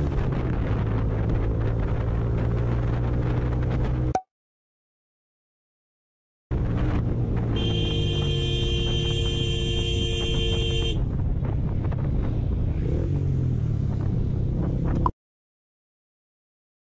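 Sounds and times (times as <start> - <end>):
wind on camera: 0.0 - 4.1, 10.1 - 15.1
motorcycle engine rumble: 6.5 - 15.1
two-tone vehicle horn: 7.6 - 11.0.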